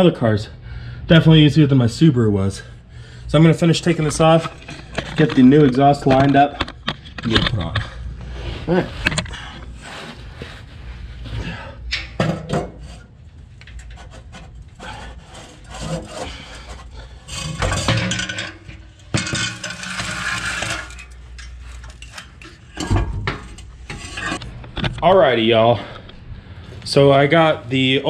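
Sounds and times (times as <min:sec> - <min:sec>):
metal scraping and clanking: 0:03.3 - 0:07.9, 0:12.2 - 0:24.9.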